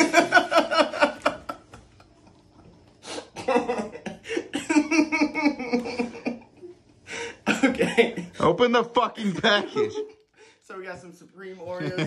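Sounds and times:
man laughing: 9.2 - 10.2.

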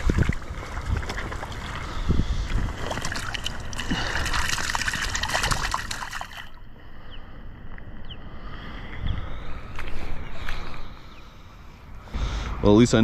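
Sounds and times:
shallow water splashing: 0.0 - 6.6.

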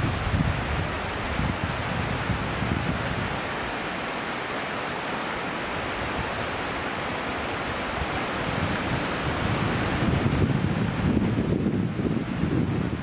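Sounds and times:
outdoor rushing noise: 0.0 - 2.4.

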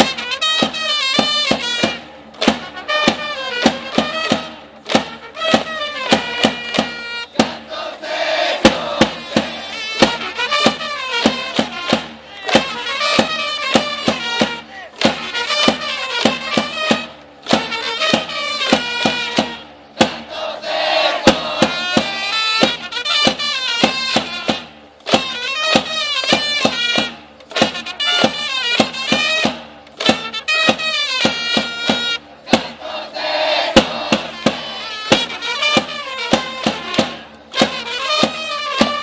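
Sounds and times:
steady drumbeat: 0.0 - 39.0
trumpets playing cheer song: 0.0 - 39.0
crowd chanting: 7.3 - 9.8, 18.2 - 22.4, 32.4 - 35.4.

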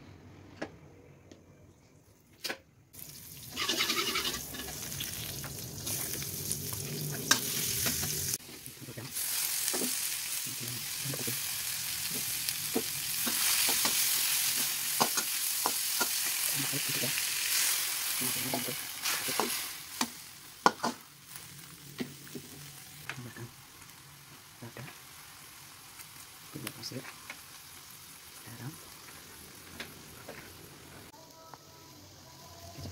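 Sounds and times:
food sizzling in hot oil: 3.0 - 31.3
spatula scraping and tapping wok: 3.6 - 4.8, 12.1 - 16.3, 18.4 - 21.1.

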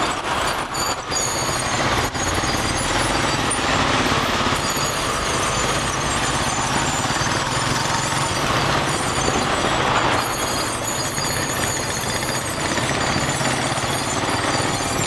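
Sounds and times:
motorbike engine chugging: 0.0 - 15.0.

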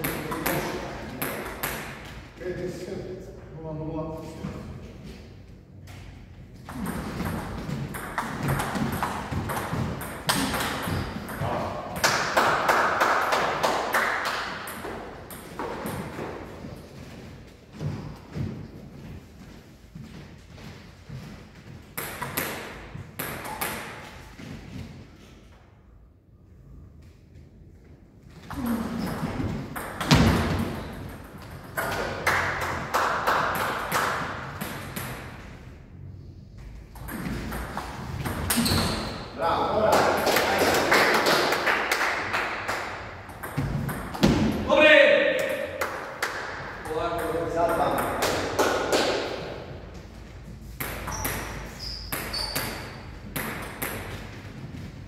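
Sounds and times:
table tennis ball bouncing: 0.0 - 2.1, 6.7 - 16.4, 28.5 - 35.4, 36.9 - 39.1, 42.9 - 44.7, 45.4 - 49.4, 50.7 - 54.3.

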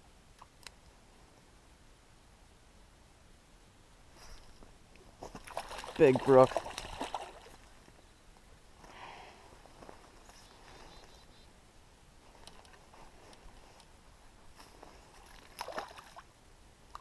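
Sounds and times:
fishing rod handling: 12.3 - 16.0.

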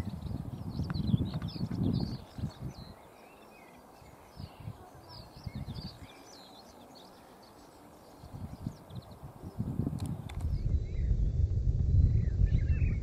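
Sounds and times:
wind gusts on microphone: 0.0 - 3.0, 4.0 - 6.3, 8.2 - 13.0
small birds chirping: 0.0 - 11.3.

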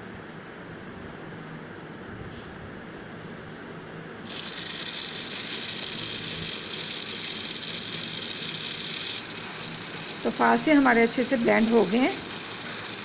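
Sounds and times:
blender motor whining: 4.3 - 13.0
blender switching on: 4.3 - 13.0.

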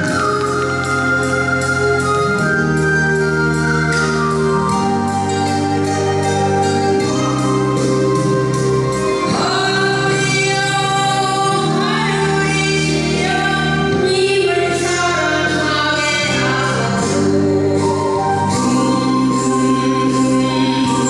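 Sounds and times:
instrumental accompaniment: 0.0 - 21.0
woman singing into a microphone: 9.2 - 21.0.

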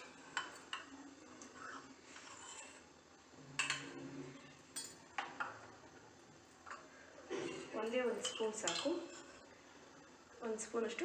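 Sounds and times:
spoon clinking against bowl: 8.2 - 9.1.

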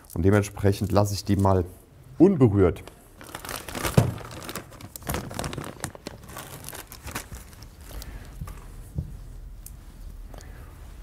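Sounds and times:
plastic packaging rustling: 2.8 - 8.6.

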